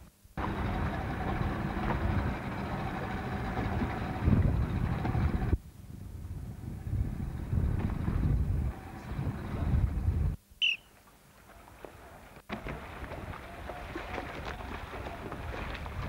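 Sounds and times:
motorboat engine running: 0:00.4 - 0:05.6, 0:06.6 - 0:10.4, 0:12.5 - 0:16.0
wind on microphone: 0:03.5 - 0:10.4, 0:12.5 - 0:16.0.

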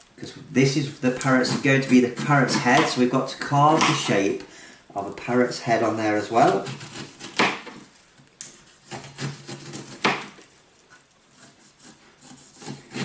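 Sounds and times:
knife scraping: 0:00.8 - 0:04.4, 0:06.2 - 0:13.0
knife cutting on plastic board: 0:01.2 - 0:03.0, 0:06.4 - 0:07.8, 0:08.5 - 0:10.4, 0:11.3 - 0:13.0.

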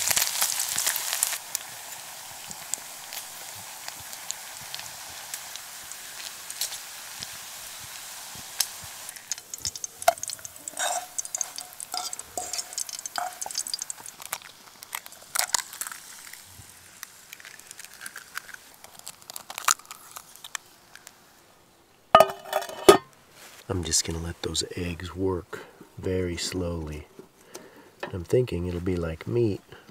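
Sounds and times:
bacon sizzling and popping: 0:00.0 - 0:21.4
fork scraping on pan: 0:09.3 - 0:14.1.

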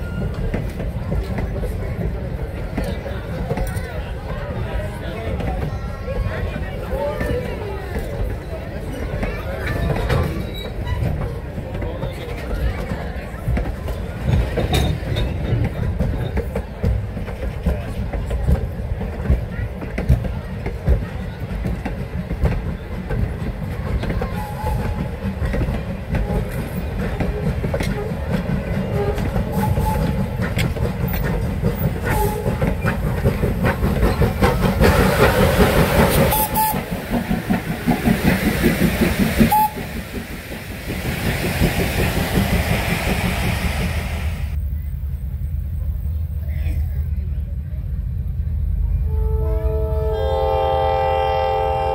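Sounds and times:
train wheels clicking on rails: 0:00.0 - 0:46.2
train rumble: 0:00.0 - 0:51.9
steam engine passing: 0:21.4 - 0:46.3.

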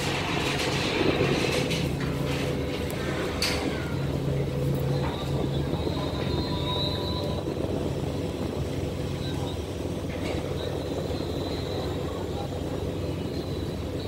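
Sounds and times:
ship engines rumbling: 0:00.0 - 0:14.0.

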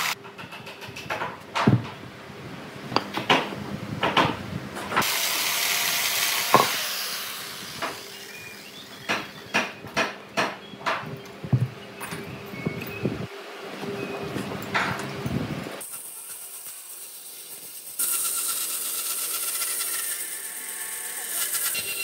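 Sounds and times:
wooden log blocks thudding: 0:06.5 - 0:06.8.

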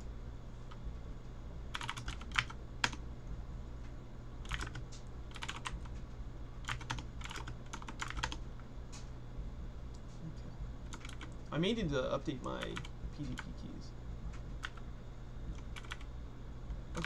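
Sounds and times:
low steady hum: 0:00.0 - 0:17.0
computer keyboard typing: 0:01.7 - 0:03.0, 0:04.4 - 0:05.9, 0:06.6 - 0:08.4, 0:10.9 - 0:11.4, 0:12.6 - 0:13.5, 0:14.6 - 0:14.8, 0:15.5 - 0:16.1.

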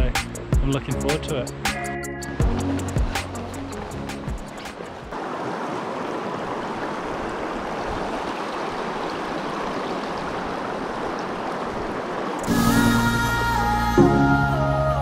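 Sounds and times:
river rushing over stones: 0:02.6 - 0:13.1.

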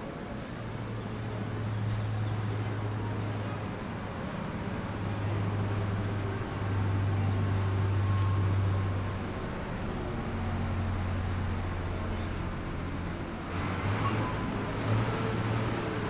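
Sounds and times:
low engine hum: 0:00.0 - 0:16.0
street noise: 0:00.0 - 0:16.0.

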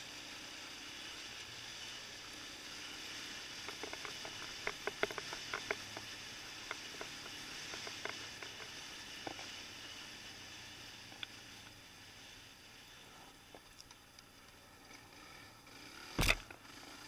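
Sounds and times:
quad bike rushing over stony track: 0:00.0 - 0:11.7, 0:14.5 - 0:17.0
stones clicking and ticking: 0:03.6 - 0:09.5, 0:16.2 - 0:16.6.

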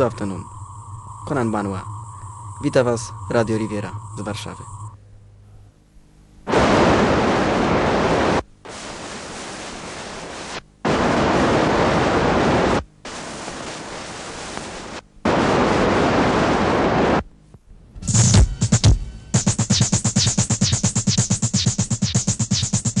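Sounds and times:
electronic noise hiss bursts: 0:00.0 - 0:05.0, 0:06.4 - 0:17.3, 0:18.0 - 0:23.0.

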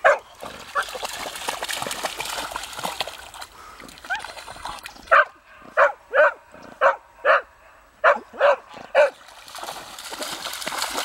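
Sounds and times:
dog barking: 0:00.0 - 0:00.2, 0:05.1 - 0:09.2
dog splashing through shallow water: 0:00.0 - 0:05.8, 0:08.7 - 0:11.0.

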